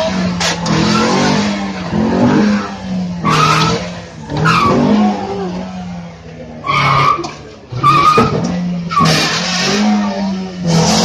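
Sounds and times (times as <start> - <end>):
car engine running hard: 0.0 - 11.0.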